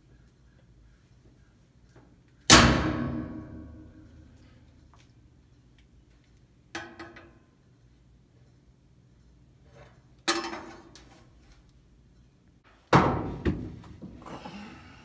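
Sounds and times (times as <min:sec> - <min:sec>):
loud metallic clang: 0:02.5 - 0:04.2.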